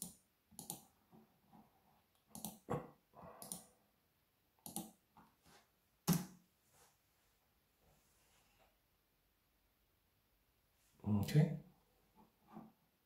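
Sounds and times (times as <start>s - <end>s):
mouse and keyboard clicks: 0.0s - 0.9s, 2.2s - 2.6s, 4.6s - 5.0s.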